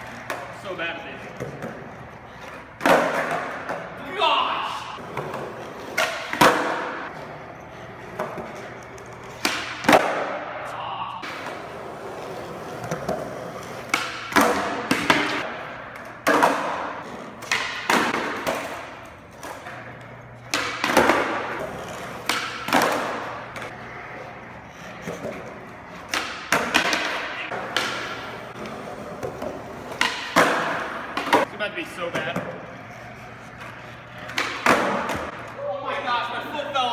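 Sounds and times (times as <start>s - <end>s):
skateboard wheels rolling: 0.0s - 36.5s
skateboard pops and slaps: 9.4s - 10.4s.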